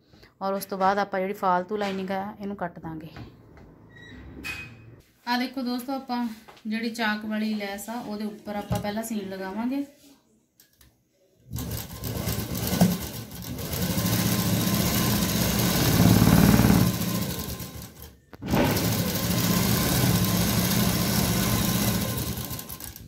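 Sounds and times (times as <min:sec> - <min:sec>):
sewing machine running: 0:11.5 - 0:23.0.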